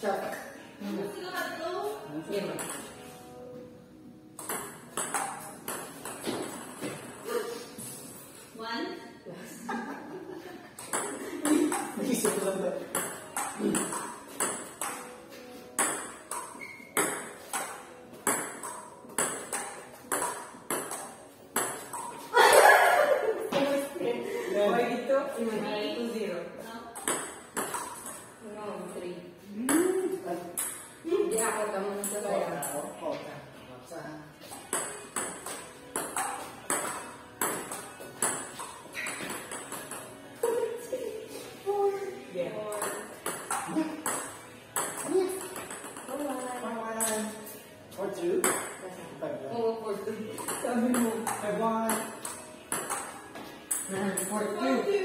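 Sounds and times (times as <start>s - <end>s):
ping-pong ball clicking off paddles: 4.4s - 7.0s, 10.8s - 15.2s, 15.8s - 22.3s, 26.9s - 28.3s, 34.5s - 40.5s, 42.7s - 47.3s, 50.3s - 54.3s.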